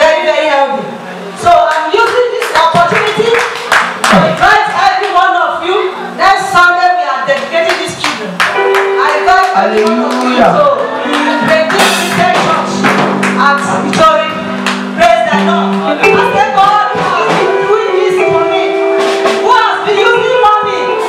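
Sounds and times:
band playing praise music: 7.3s - 21.0s
percussion hits: 7.8s - 21.0s.

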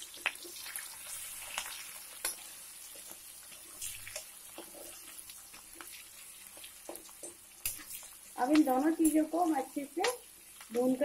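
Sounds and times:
chillies and garlic sizzling in oil: 0.0s - 11.0s
oil popping and crackling: 0.0s - 11.0s.

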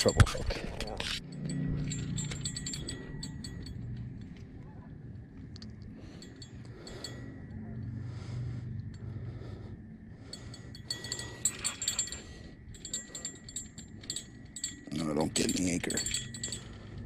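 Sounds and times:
fishing tackle clinking: 0.0s - 4.6s, 10.2s - 17.0s
low steady hum: 0.0s - 17.0s.

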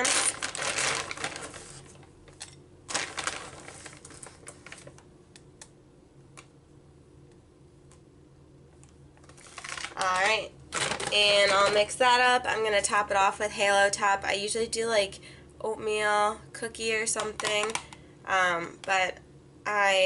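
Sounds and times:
plastic bag rustling: 0.0s - 5.0s, 9.2s - 12.0s.

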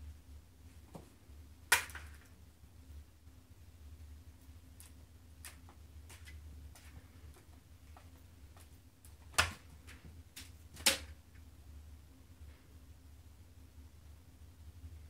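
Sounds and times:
sharp plastic knocks: 9.2s - 11.1s.

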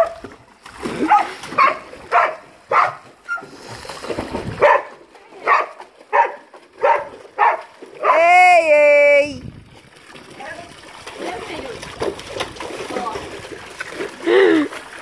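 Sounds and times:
dog barking: 1.0s - 3.5s, 4.6s - 8.2s.

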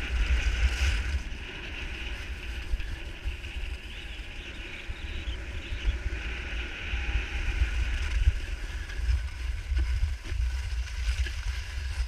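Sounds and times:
skis sliding on snow: 0.0s - 12.0s
wind buffeting microphone: 0.0s - 12.0s.

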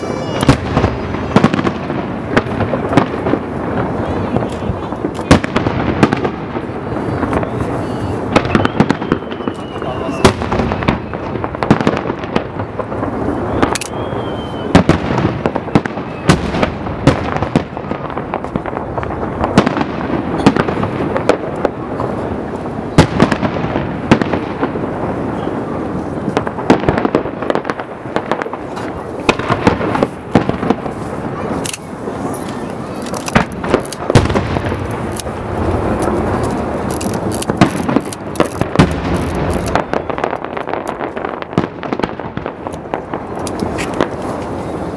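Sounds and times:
firework whistle: 0.0s - 1.6s, 6.9s - 11.6s, 13.0s - 15.0s, 15.8s - 16.5s
firework bangs: 0.0s - 44.9s
firework crackle: 0.0s - 44.9s.

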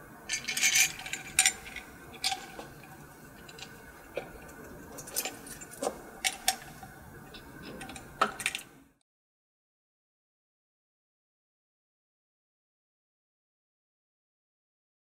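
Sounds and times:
metal parts clinking: 0.3s - 6.8s, 7.7s - 8.7s.

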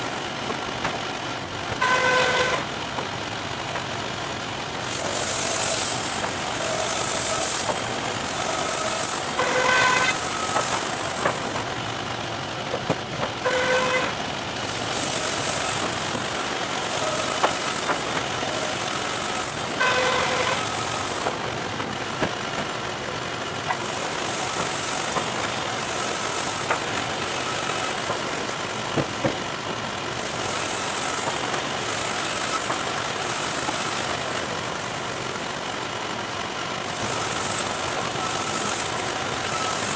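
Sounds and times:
band sawmill running: 0.0s - 39.9s
boards knocking: 28.9s - 29.8s.

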